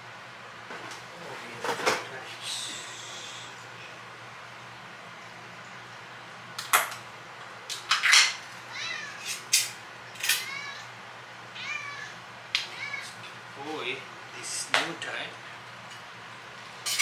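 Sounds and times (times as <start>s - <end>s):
cats meowing: 8.6s - 9.5s, 10.2s - 13.4s.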